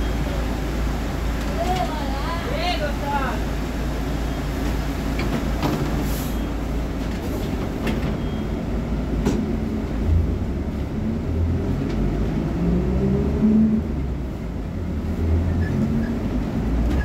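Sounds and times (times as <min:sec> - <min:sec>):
diesel bus engine idling: 0:00.0 - 0:11.8.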